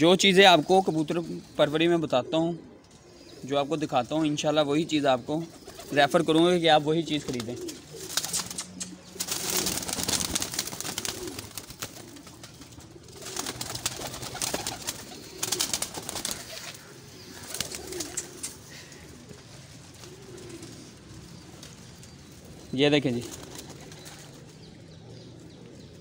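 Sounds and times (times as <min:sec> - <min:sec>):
pigeons cooing: 0:00.1 - 0:26.0
wings fluttering: 0:05.5 - 0:06.2, 0:07.2 - 0:24.6.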